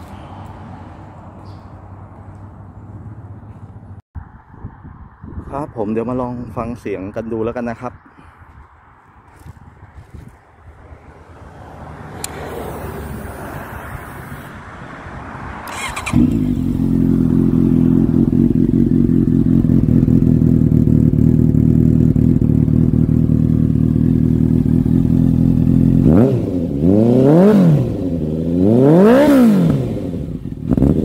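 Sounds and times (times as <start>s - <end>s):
motorcycle engine idling: 15.7s - 26.0s.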